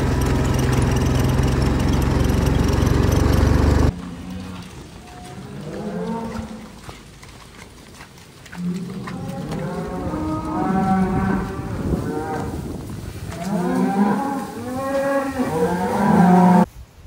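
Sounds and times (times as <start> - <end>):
cattle mooing: 3.8 - 6.8, 8.6 - 12.6, 13.2 - 16.7.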